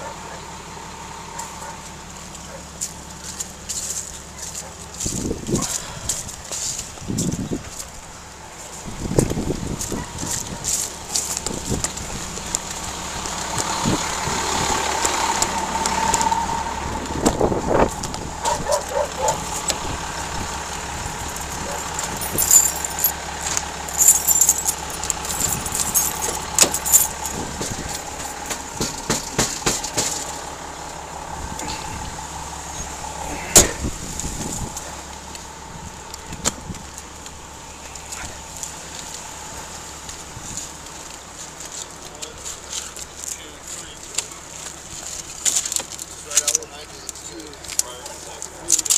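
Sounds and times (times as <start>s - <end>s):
vehicle engines idling: 0.0s - 48.9s.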